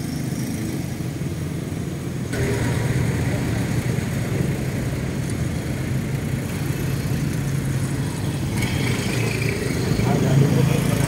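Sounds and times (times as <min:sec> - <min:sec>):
engine idling: 0:02.3 - 0:11.0.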